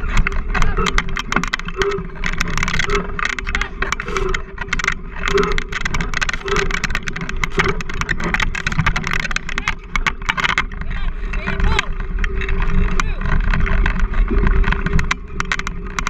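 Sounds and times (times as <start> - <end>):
rig frame rattling: 0.0 - 16.0
steady low whine: 0.0 - 16.0.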